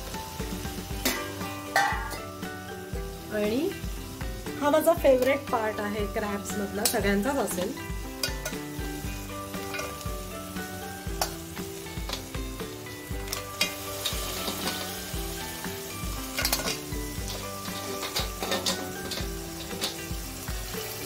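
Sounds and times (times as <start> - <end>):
frying sizzle: 0.0 - 21.0.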